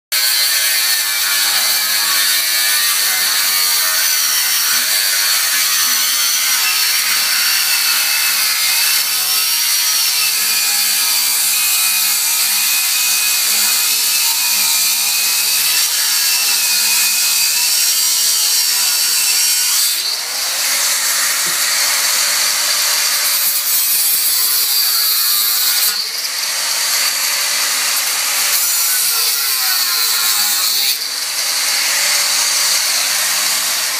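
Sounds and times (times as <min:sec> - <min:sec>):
angle grinder grinding steel: 0:00.1 - 0:33.9.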